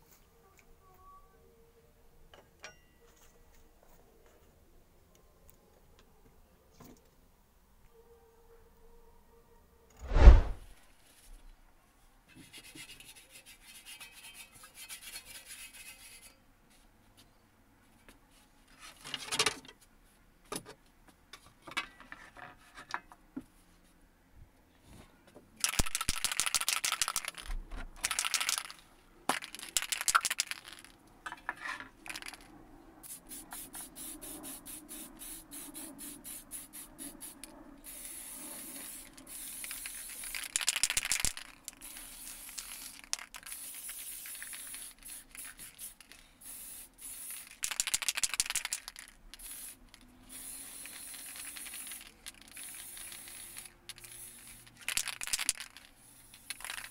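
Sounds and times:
spray can rattling: 0:25.6 - 0:31.0, 0:32.0 - 0:56.9
spray paint hissing: 0:32.1 - 0:56.9.

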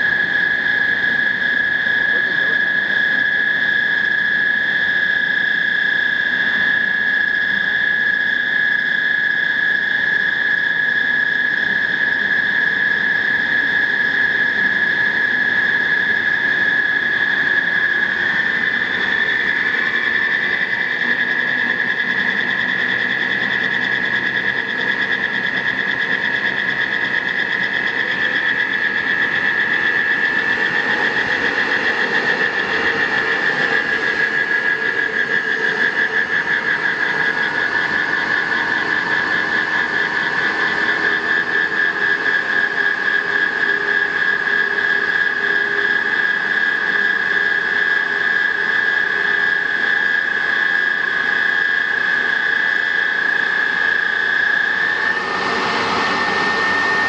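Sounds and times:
centrifuge motor whining: 0:26.4 - 0:47.3, 0:51.7 - 0:57.0.

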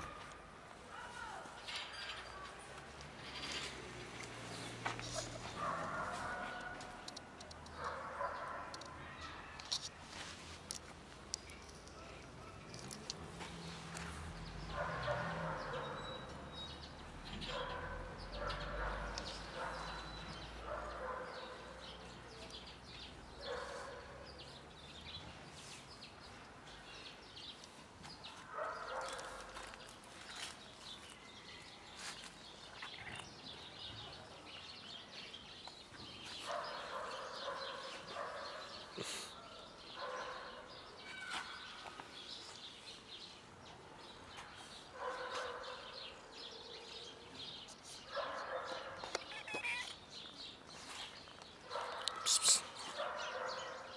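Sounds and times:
cat meowing: 0:49.2 - 0:50.0.

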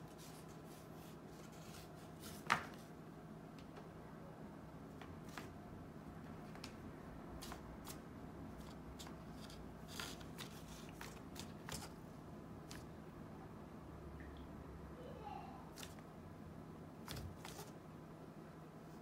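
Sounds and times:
cat pawing at paper mask: 0:07.4 - 0:12.0, 0:17.0 - 0:17.8.

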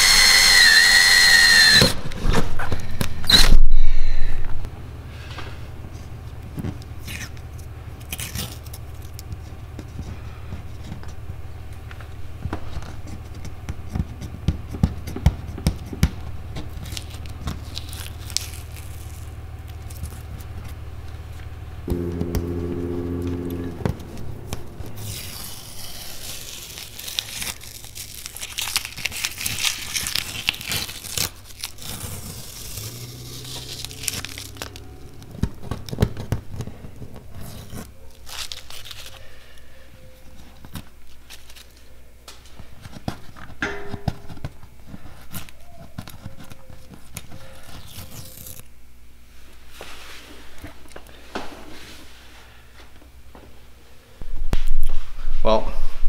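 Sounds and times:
masking tape peeling and crumpling: 0:00.0 - 0:03.6, 0:06.6 - 0:11.2, 0:12.7 - 0:21.2, 0:24.4 - 0:39.6, 0:40.4 - 0:41.8, 0:45.0 - 0:48.7
steady low hum: 0:02.0 - 0:45.9.

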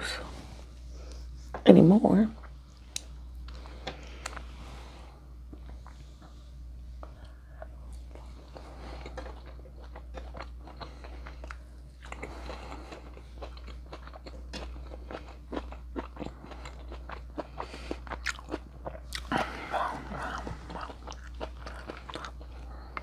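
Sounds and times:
steady low hum: 0:00.0 - 0:23.0
person chewing: 0:02.4 - 0:04.6, 0:07.0 - 0:23.0.

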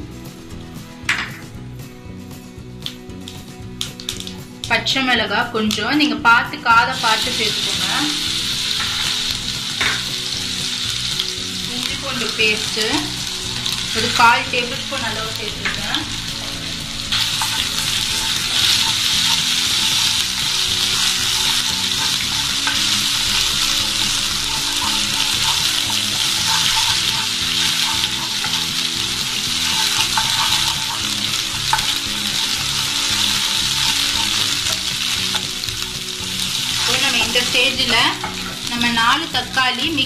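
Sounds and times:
spices sizzling in hot oil: 0:00.0 - 0:40.0
wooden spatula scraping pan: 0:17.1 - 0:35.9.

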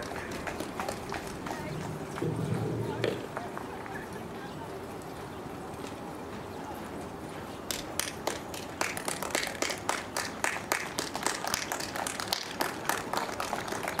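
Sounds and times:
people clapping: 0:00.0 - 0:04.2, 0:07.6 - 0:14.0.

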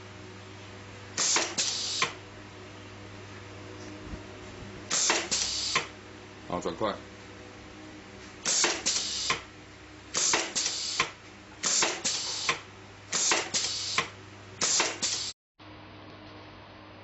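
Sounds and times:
steady low hum: 0:00.0 - 0:14.6
sharp air hisses: 0:01.2 - 0:02.1, 0:04.9 - 0:05.9, 0:08.4 - 0:09.4, 0:10.2 - 0:15.3.

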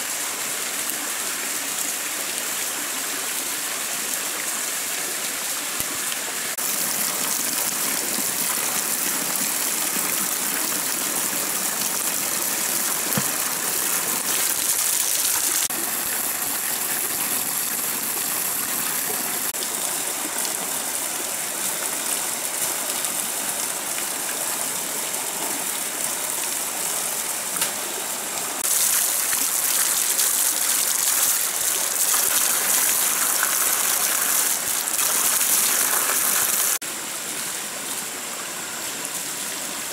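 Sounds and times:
stream rushing: 0:00.0 - 0:39.9
water gushing from pipe onto rocks: 0:05.8 - 0:27.8, 0:28.6 - 0:36.8.

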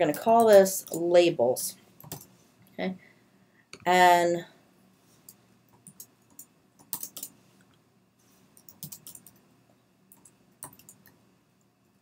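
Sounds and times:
faint typing on keyboard: 0:00.0 - 0:01.1, 0:02.0 - 0:02.8, 0:05.2 - 0:07.8, 0:08.5 - 0:09.5, 0:10.1 - 0:12.0.

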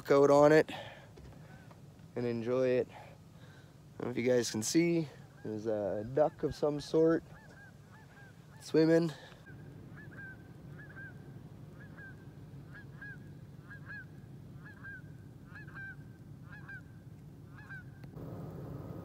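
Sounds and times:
goose honking: 0:09.9 - 0:18.0.

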